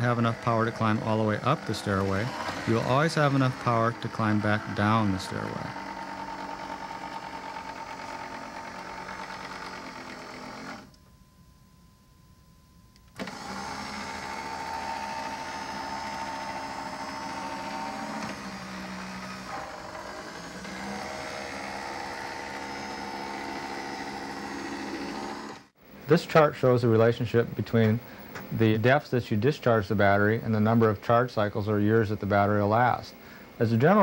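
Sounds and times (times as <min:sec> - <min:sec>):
motor and gearbox whining: 0:00.0 - 0:11.0, 0:13.1 - 0:25.8.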